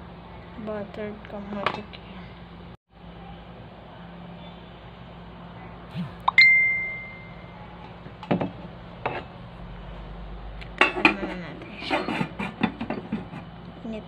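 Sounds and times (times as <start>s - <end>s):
bright ding: 6.3s - 7.6s.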